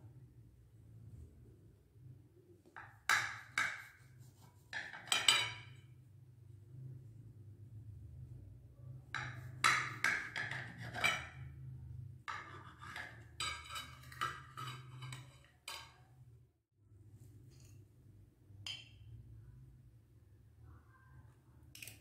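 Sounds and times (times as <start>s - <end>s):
knife tapping and scraping plate: 2.8s - 4.0s, 4.7s - 5.8s, 9.2s - 11.5s, 12.3s - 16.0s.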